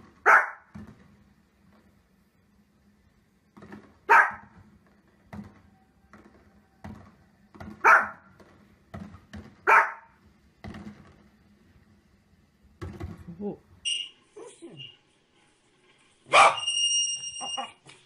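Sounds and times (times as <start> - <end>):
small dog barking: 0.2 - 0.7, 4.1 - 4.5, 7.8 - 8.2, 9.6 - 10.2, 16.3 - 16.7
faint pops and knocks: 3.5 - 11.5, 12.8 - 13.3.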